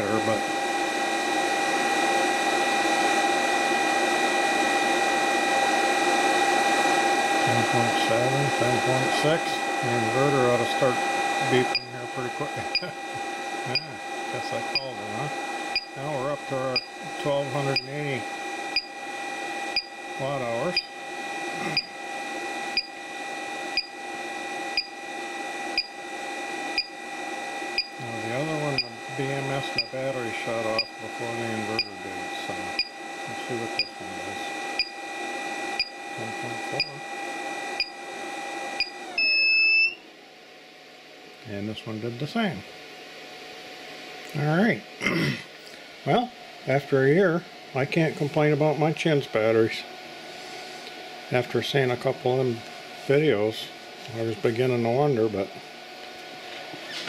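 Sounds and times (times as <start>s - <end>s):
cooling fan whirring: 0.0s - 57.0s
steady whining tones: 0.0s - 57.0s
alarm beeping: 7.5s - 38.1s, 38.7s - 40.0s.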